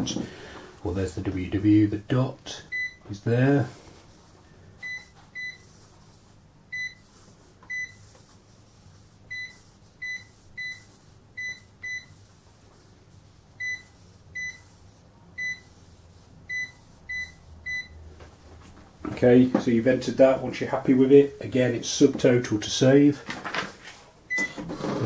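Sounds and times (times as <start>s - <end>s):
cash register key beeps: 24.3s - 25.0s.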